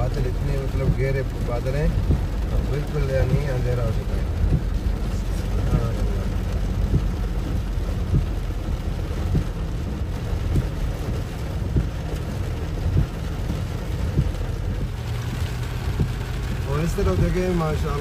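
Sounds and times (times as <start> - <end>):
car engine low rumble: 0.0 - 18.0
heavy rain on car windshield: 0.0 - 18.0
sharp raindrop ticks: 0.0 - 18.0.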